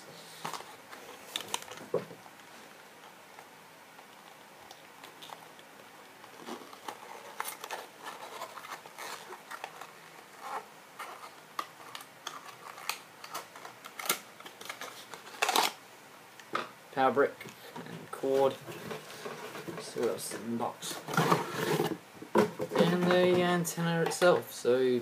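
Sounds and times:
packaging crinkling: 0.4s - 1.9s, 4.2s - 15.8s.

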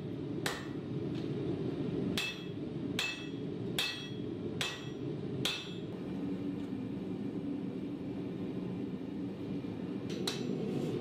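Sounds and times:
steady low hum: 0.0s - 11.0s
hammer ringing on hot steel: 0.4s - 0.8s, 2.2s - 5.9s.

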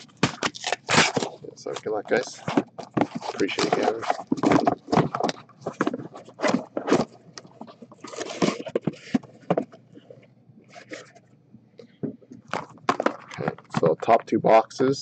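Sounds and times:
cardboard boxes scraping and knocking: 2.1s - 9.8s.

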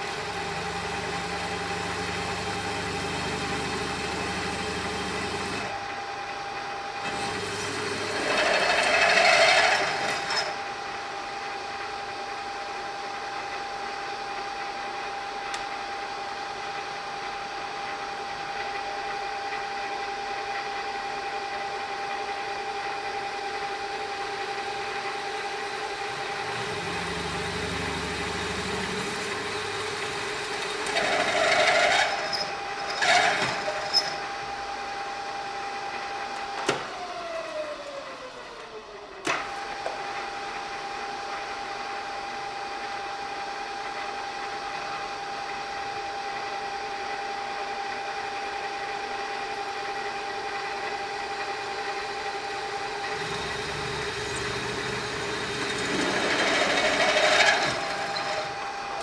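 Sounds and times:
drill press gear whine: 0.0s - 59.0s
drill press rasping: 7.0s - 10.6s, 24.8s - 34.6s, 50.4s - 59.0s.

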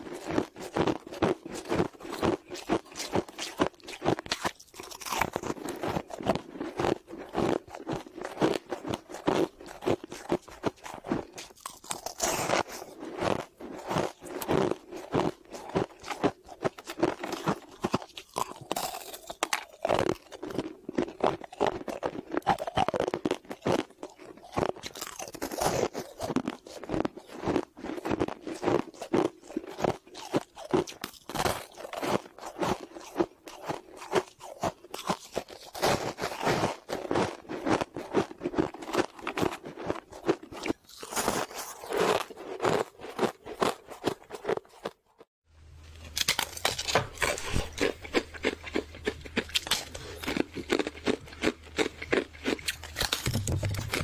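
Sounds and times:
ice being chewed: 0.0s - 45.3s, 45.9s - 54.0s.

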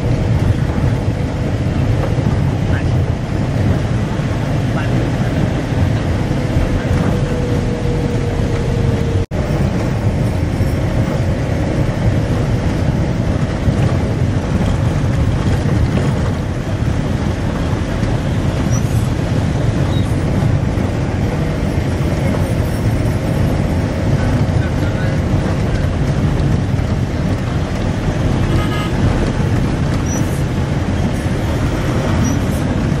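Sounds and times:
bus engine and road rumble: 0.0s - 33.0s.

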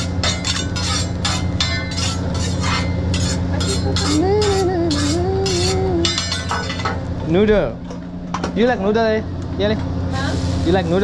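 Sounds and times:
metal spatula scraping griddle: 0.0s - 6.9s
steady low hum: 0.0s - 11.0s
person humming: 3.6s - 6.2s.

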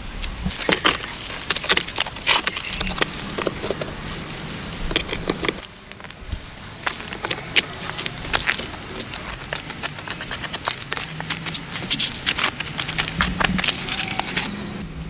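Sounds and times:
shovel scraping dirt: 0.4s - 14.6s
hand tools tapping stone: 8.3s - 14.4s.

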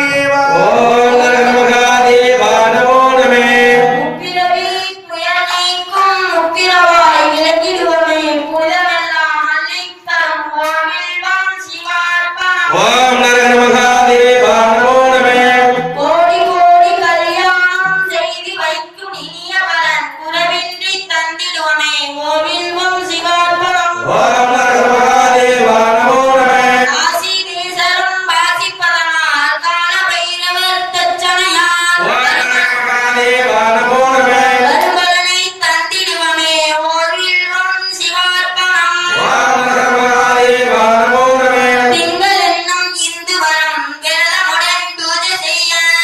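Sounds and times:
person singing devotional chant: 0.0s - 5.0s, 12.7s - 17.5s, 22.2s - 27.4s, 32.0s - 35.2s, 39.1s - 42.8s.

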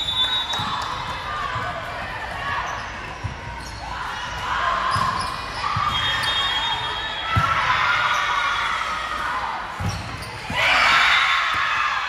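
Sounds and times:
sneaker squeaks on court: 2.6s - 3.9s, 4.9s - 6.6s, 9.8s - 10.5s.

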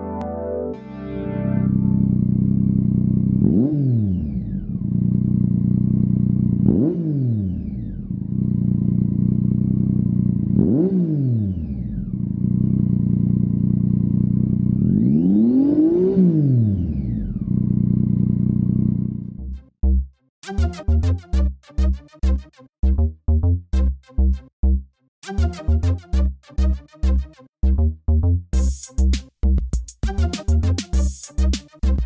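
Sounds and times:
motorcycle engine idling and revving: 2.0s - 20.0s.

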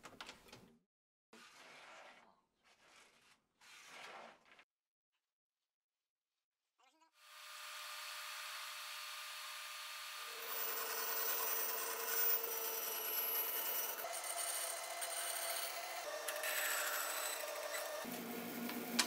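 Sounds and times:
bandsaw cutting wood: 7.6s - 19.0s
drill press boring into wood: 7.9s - 18.1s.

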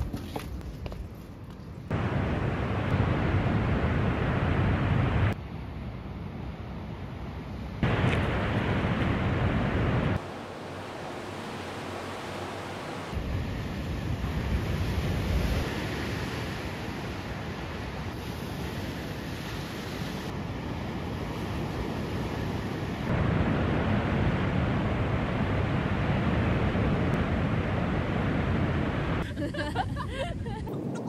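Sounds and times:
wind rumbling on microphone: 1.9s - 31.0s
sea waves breaking: 7.8s - 30.1s.

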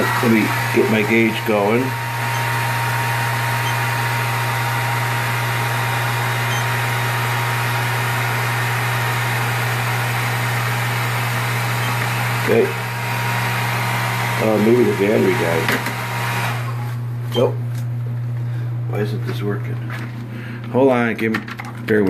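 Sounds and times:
hair dryer running: 0.0s - 17.2s.

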